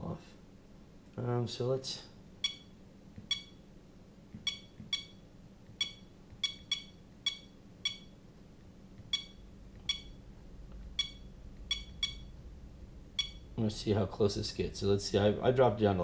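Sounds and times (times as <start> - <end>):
electronic button beeps: 2.4 - 3.6, 4.4 - 5.2, 5.8 - 8.2, 9.0 - 10.2, 10.9 - 12.4, 13.2 - 13.5.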